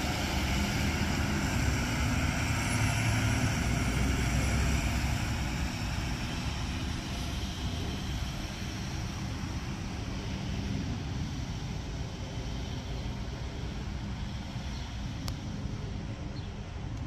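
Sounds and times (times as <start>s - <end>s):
distant diesel engine running: 0.0s - 10.4s.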